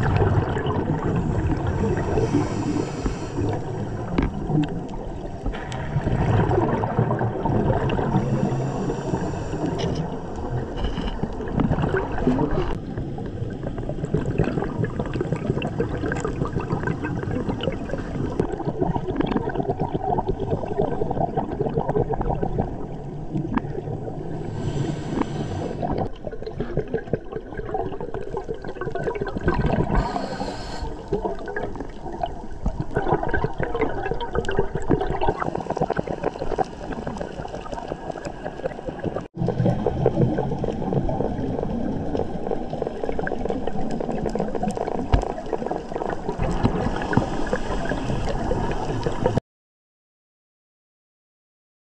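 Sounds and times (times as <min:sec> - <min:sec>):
diver's regulator gurgling: 0:00.0 - 0:49.4
exhaled bubbles: 0:00.0 - 0:49.4
short hisses: 0:29.9 - 0:31.0.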